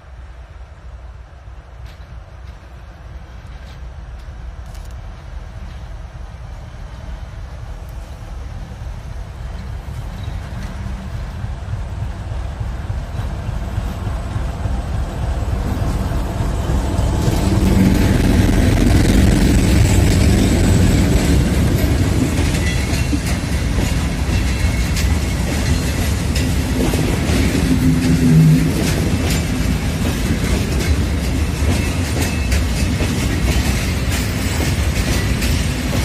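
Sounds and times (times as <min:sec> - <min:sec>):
diesel locomotive passing: 0:00.0 - 0:36.0
wheels clattering over rail joints: 0:15.3 - 0:36.0.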